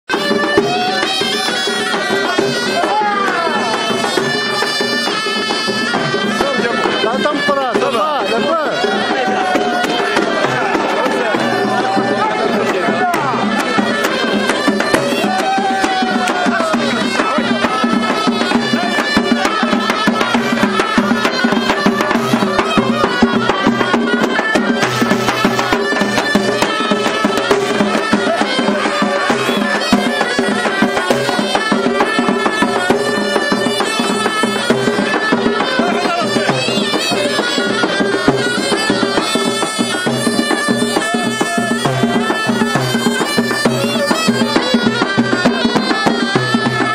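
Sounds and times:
fast drum beats: 0.1 - 46.9
shawm melody: 0.1 - 46.9.

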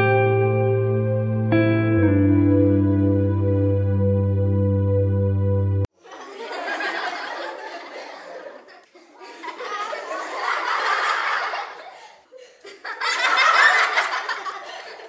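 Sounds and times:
canned laughter: 6.0 - 15.0.

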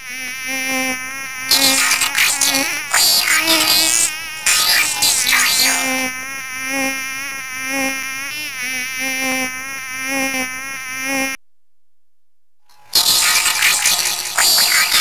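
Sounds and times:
mosquito whining: 1.5 - 6.1, 12.9 - 15.0.

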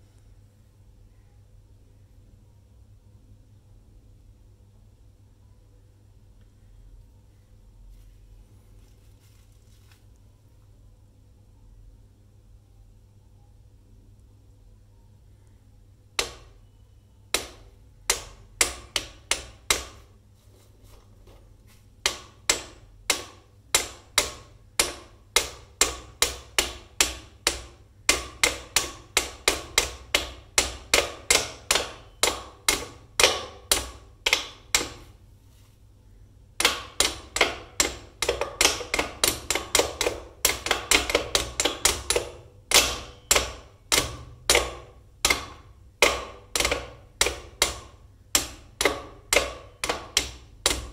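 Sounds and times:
wooden mallets tapping pegs: 16.2 - 16.6, 17.3 - 20.1, 22.0 - 35.2, 36.6 - 50.9.

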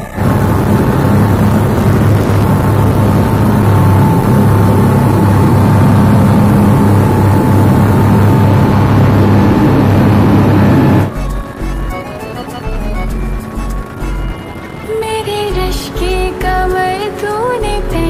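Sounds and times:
boat engine drone: 0.0 - 18.0.

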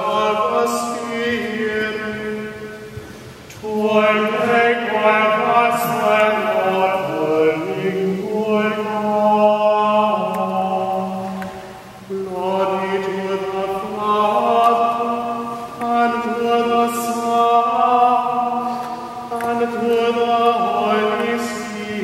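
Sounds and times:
sung liturgical chant: 0.0 - 22.0.

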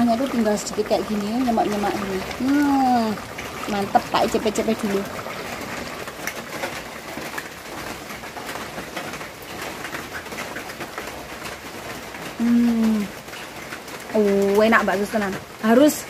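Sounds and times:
woman humming mmm: 12.4 - 13.1.

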